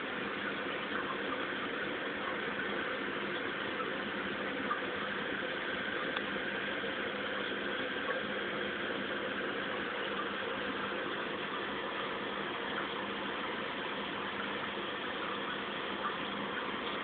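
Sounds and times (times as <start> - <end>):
aquarium pump humming: 0.0 - 17.0
faint tick: 6.0 - 6.3.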